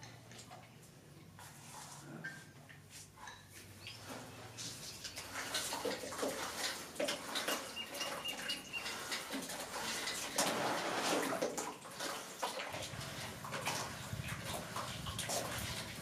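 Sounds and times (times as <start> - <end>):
wet sloshing and dripping: 3.8 - 16.0.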